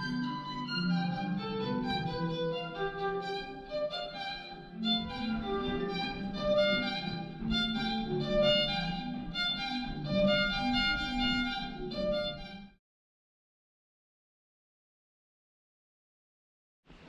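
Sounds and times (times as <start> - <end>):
classical violin music: 0.0 - 12.8.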